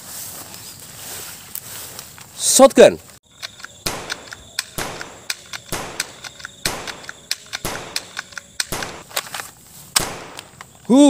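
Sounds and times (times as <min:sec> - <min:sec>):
light clicks: 0:03.4 - 0:09.4
shotgun blasts: 0:03.8 - 0:09.1, 0:10.0 - 0:10.5.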